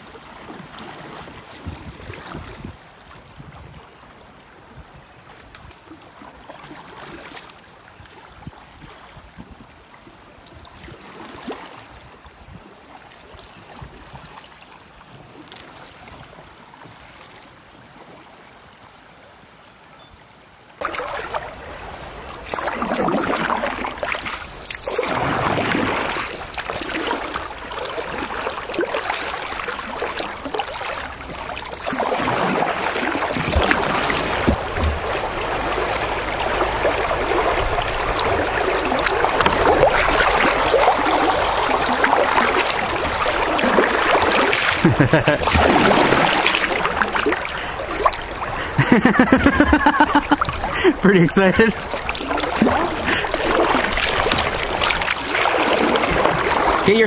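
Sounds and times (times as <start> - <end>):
river water rushing: 20.6 - 57.0.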